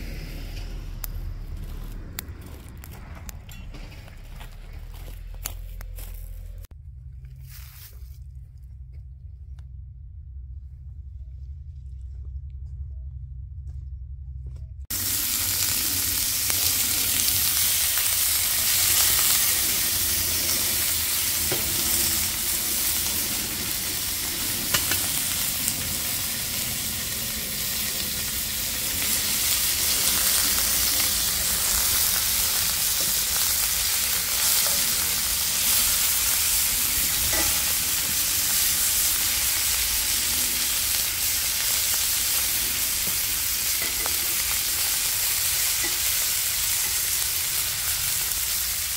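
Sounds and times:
beef sizzling in a skillet: 14.9s - 48.9s.

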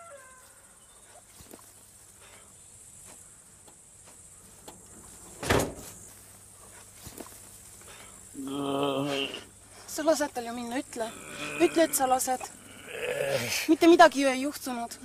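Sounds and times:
faint insect chirring: 0.0s - 15.0s
loud thump: 5.4s - 6.0s.

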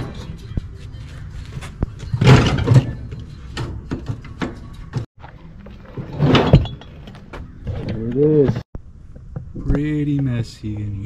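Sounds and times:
metal parts clunking: 2.0s - 4.6s, 5.8s - 8.6s.

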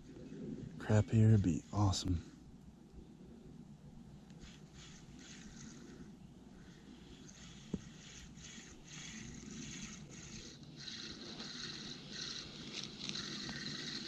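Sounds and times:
spinning reel whirring: 4.3s - 14.0s.

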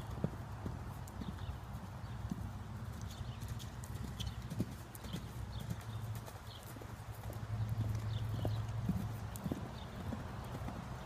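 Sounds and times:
horse hoofbeats cantering: 0.0s - 11.0s.

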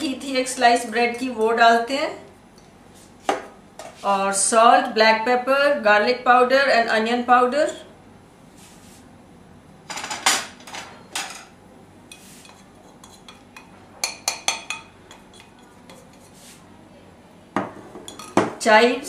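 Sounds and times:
metal spoon clinking on ceramic dish: 12.5s - 16.0s, 18.1s - 18.5s.

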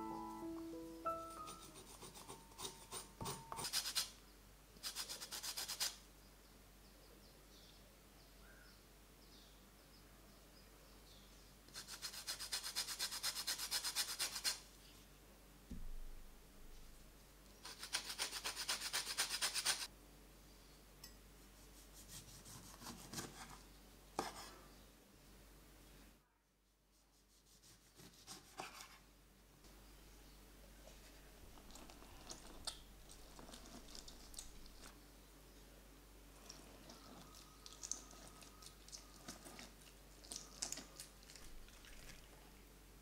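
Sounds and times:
peel scraped on rasp grater: 1.4s - 4.1s.

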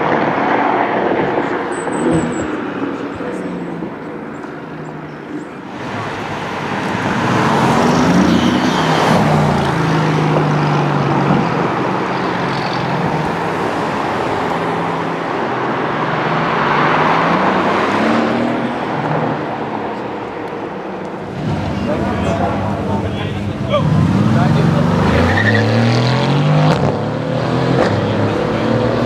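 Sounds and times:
sports cars driving past: 0.0s - 29.0s.

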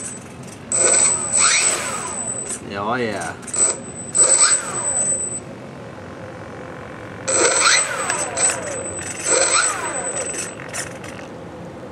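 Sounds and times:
servo motor whining: 0.7s - 2.6s, 3.4s - 5.3s, 7.3s - 11.2s.

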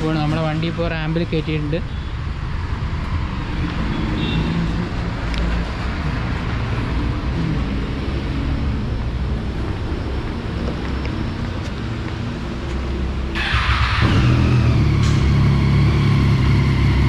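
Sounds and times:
vehicle engine running: 13.4s - 17.0s.

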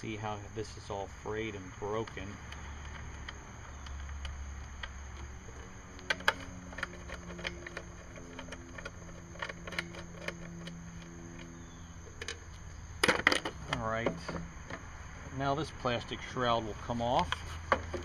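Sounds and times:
low background hum: 0.0s - 18.0s
hands clicking plastic starter housing: 2.0s - 14.9s.

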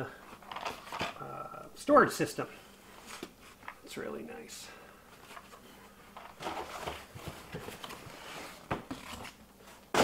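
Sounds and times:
packaging rustling and scraping: 0.2s - 1.2s, 5.1s - 10.0s.

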